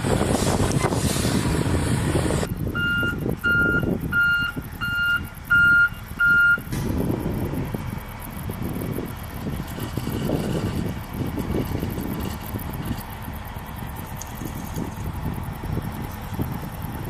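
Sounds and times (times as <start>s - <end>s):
truck engine rumble: 0.0s - 17.0s
truck backup alarm beeping: 2.4s - 17.0s.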